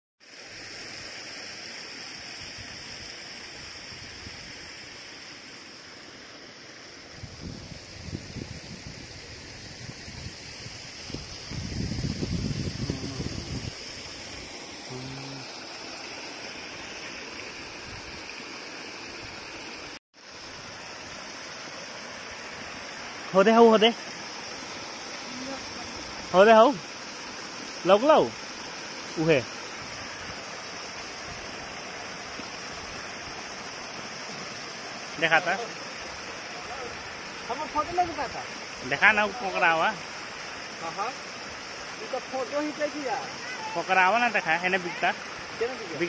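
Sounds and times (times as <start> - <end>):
insects chorus: 0.2 - 46.0
wind rumble on microphone: 7.2 - 13.8
water rushing through a channel: 9.4 - 46.0.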